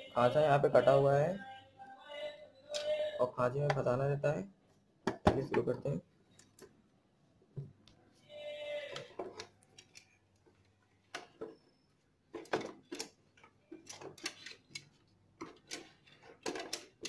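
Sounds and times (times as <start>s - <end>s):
plastic parts clicking: 8.9s - 11.6s, 12.3s - 17.0s
wire connectors being fitted: 8.9s - 11.6s, 12.4s - 17.0s.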